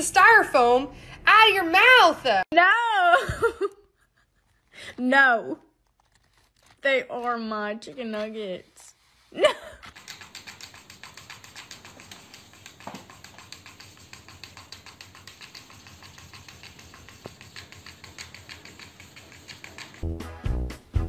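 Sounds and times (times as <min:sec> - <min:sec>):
cat treading on keyboard: 0:09.8 - 0:20.0.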